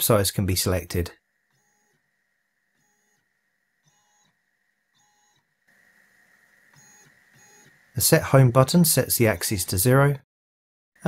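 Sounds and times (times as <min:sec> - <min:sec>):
faint high hum: 0:00.0 - 0:10.2
stepper motors whining: 0:05.0 - 0:09.7.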